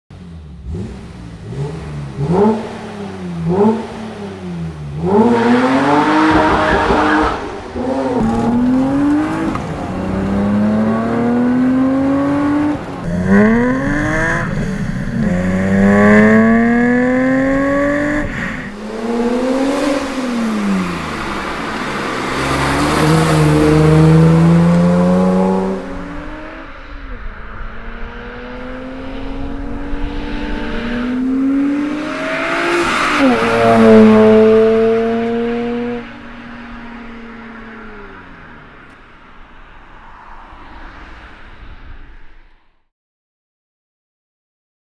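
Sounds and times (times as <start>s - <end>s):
car engine revving: 0.1s - 40.5s
car driving past: 2.3s - 42.7s.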